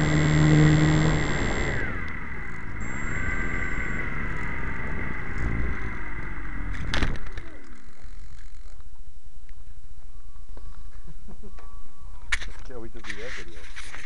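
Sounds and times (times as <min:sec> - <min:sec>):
rushing wind: 0:00.0 - 0:07.7
model plane motor and propeller: 0:00.0 - 0:09.1
falling whine: 0:00.0 - 0:12.6.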